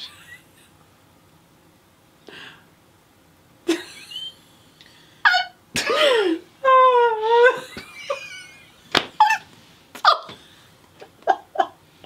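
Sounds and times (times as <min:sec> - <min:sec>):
woman laughing hard: 0:03.7 - 0:04.4, 0:05.3 - 0:10.4, 0:11.0 - 0:11.8.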